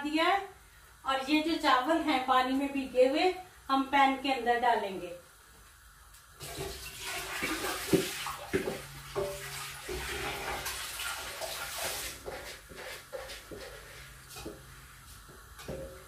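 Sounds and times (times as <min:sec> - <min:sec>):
rice and water pouring: 0:06.4 - 0:14.1.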